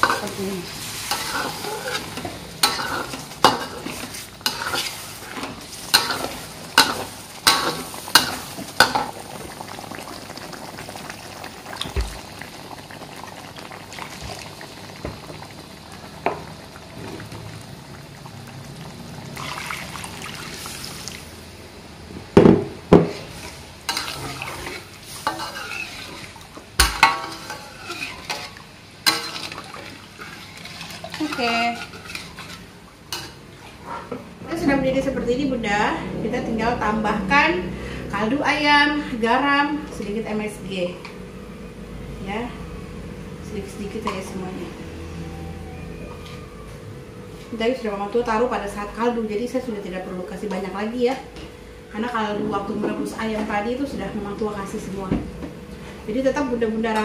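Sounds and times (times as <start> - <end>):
sizzling hiss: 0.0 - 21.6, 23.1 - 29.5.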